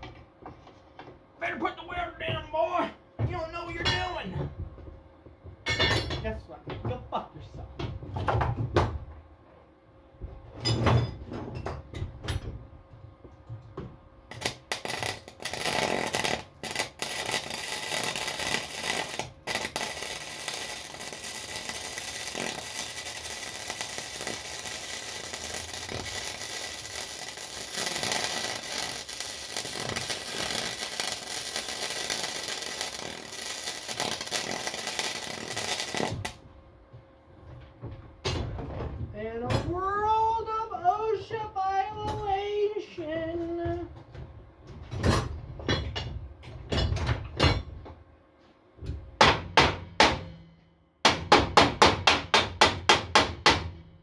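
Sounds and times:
welding arc crackling: 14.3 - 36.4.

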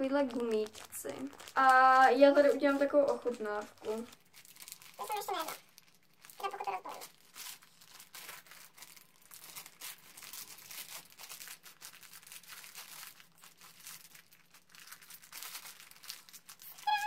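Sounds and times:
plastic bag crinkling: 0.0 - 17.0
short high-pitched cry: 16.7 - 17.0.

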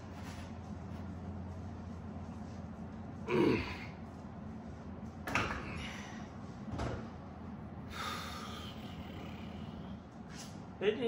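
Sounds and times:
man groaning exhale: 3.3 - 3.9
breathy exhales: 7.9 - 9.9.

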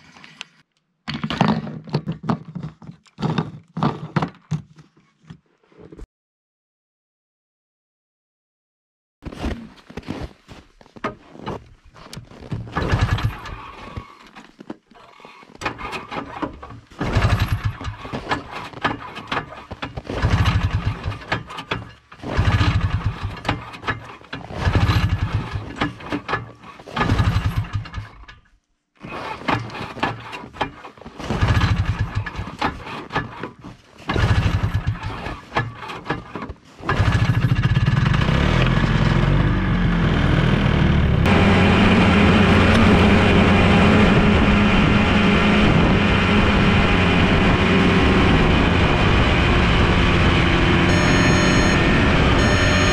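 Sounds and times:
recoil starter pulls: 15.1 - 28.5, 29.1 - 39.5
snowmobile engine running: 22.2 - 23.5, 36.8 - 52.9.

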